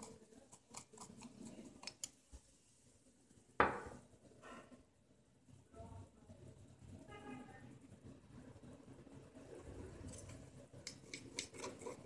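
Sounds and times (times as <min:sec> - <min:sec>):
knife scraping stone mortar: 0:10.3 - 0:12.0.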